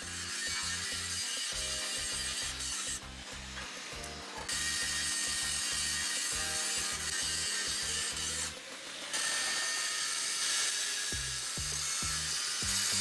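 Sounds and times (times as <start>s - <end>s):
angle grinder grinding metal: 0.0s - 13.0s
music with deep bass beat: 1.0s - 7.1s, 11.1s - 13.0s.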